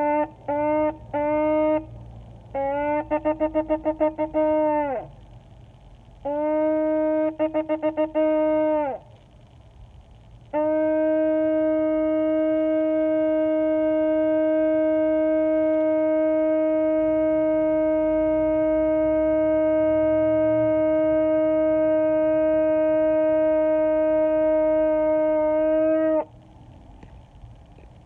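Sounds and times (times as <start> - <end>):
horn blown in long blast: 0.0 - 5.3, 6.2 - 9.3, 10.4 - 26.4.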